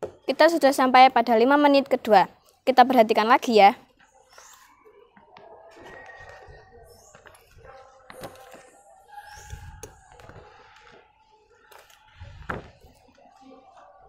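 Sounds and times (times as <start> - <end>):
soft thump: 12.4 - 12.8.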